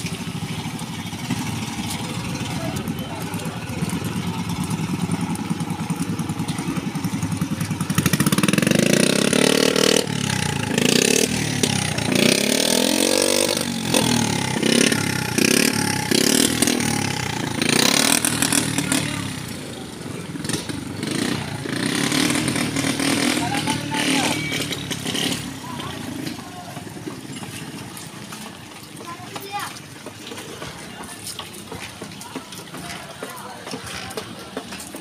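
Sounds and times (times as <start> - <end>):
small motorcycle engines revving: 0.0 - 27.9.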